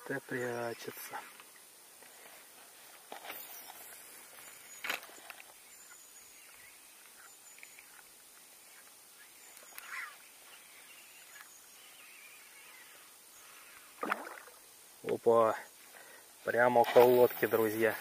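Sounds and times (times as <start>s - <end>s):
faint bird chirps: 3.2s - 14.7s.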